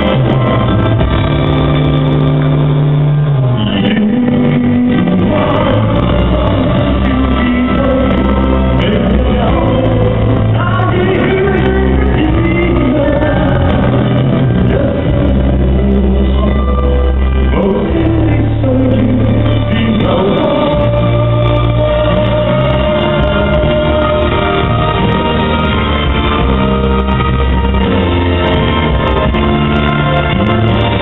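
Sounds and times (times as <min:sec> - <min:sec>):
backing track with bass and chords: 0:00.0 - 0:31.0
man singing into microphone: 0:03.4 - 0:26.1.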